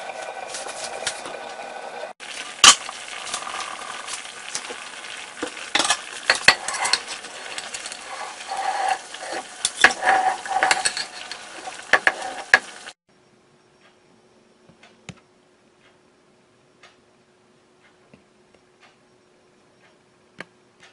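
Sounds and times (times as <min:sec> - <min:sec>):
stew sizzling and bubbling: 0:00.0 - 0:13.0
metal ladle scraping clay pot: 0:05.4 - 0:12.8
soft ticks: 0:14.7 - 0:16.0, 0:16.8 - 0:17.0, 0:17.8 - 0:19.1.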